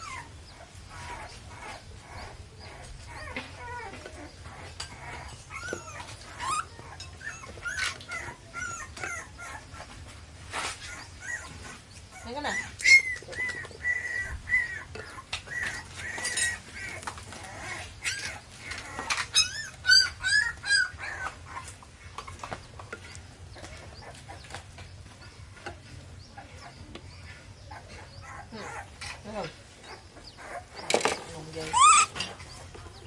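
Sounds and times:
baby monkey squeaky calls: 0:01.0 - 0:09.6, 0:10.9 - 0:18.4, 0:19.0 - 0:21.6, 0:31.6 - 0:32.6.

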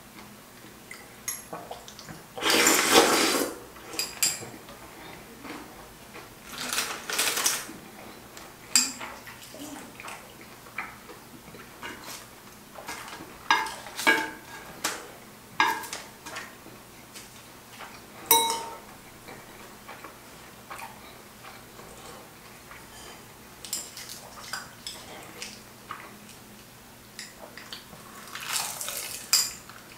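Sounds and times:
chopsticks clinking on ceramic dish: 0:18.3 - 0:18.9.

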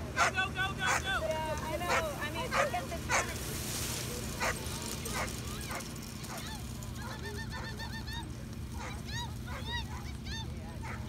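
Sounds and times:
dog barking: 0:00.2 - 0:01.0, 0:01.9 - 0:03.3, 0:04.4 - 0:07.8, 0:08.8 - 0:10.2
dog yipping: 0:00.2 - 0:01.0, 0:01.9 - 0:03.3, 0:04.4 - 0:08.2, 0:08.8 - 0:11.0.

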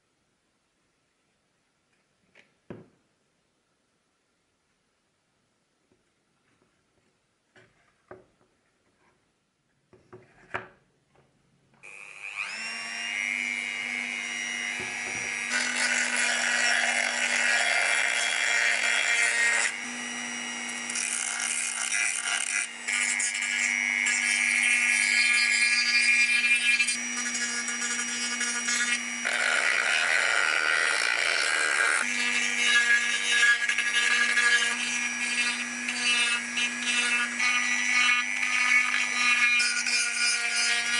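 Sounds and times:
rotary tool whining: 0:11.8 - 0:40.9.

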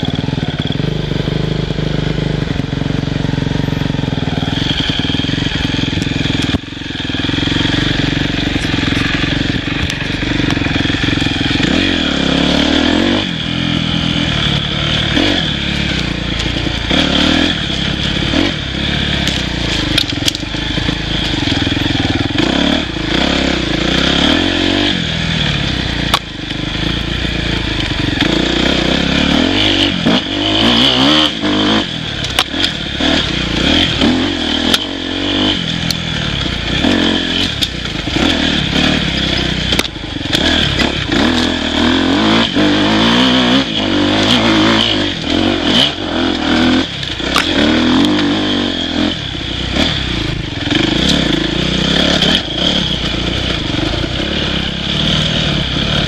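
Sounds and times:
dirt bike engine revving: 0:00.0 - 0:56.0
sharp knocks and clatter: 0:36.8 - 0:41.6.

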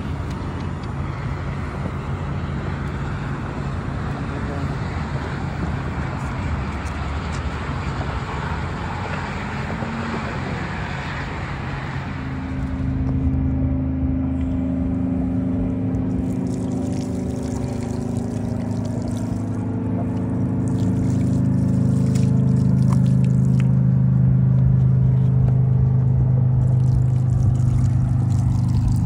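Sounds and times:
vehicle engine idling: 0:00.0 - 0:29.0
water splashing on concrete: 0:15.8 - 0:25.6, 0:26.4 - 0:29.0.

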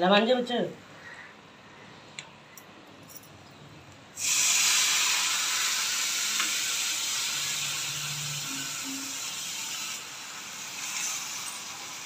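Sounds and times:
food sizzling in hot oil: 0:04.2 - 0:12.0.

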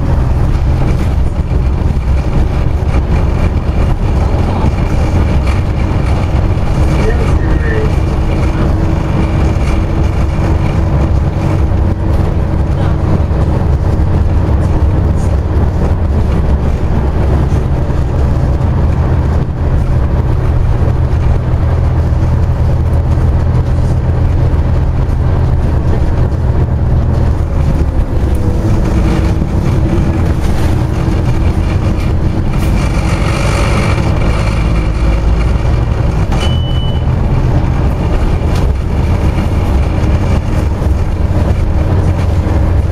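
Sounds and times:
bus engine drone: 0:00.0 - 0:42.9
road noise: 0:00.0 - 0:42.9
short high beep: 0:36.4 - 0:37.1.

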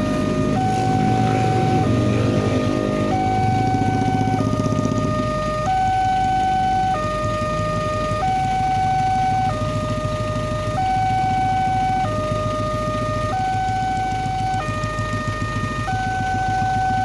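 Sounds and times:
low engine rumble: 0:00.0 - 0:17.0
two-tone level crossing alarm: 0:00.0 - 0:17.0.

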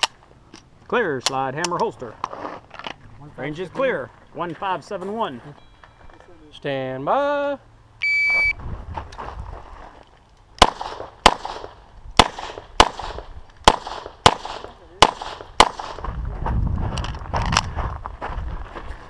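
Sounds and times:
shot timer beep: 0:08.0 - 0:08.6
handgun shots: 0:10.6 - 0:16.0.

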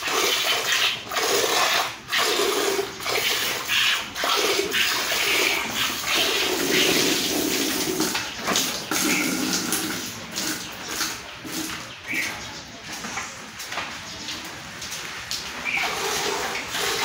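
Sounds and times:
milk squirting into a pail: 0:00.0 - 0:11.8, 0:15.7 - 0:17.0.

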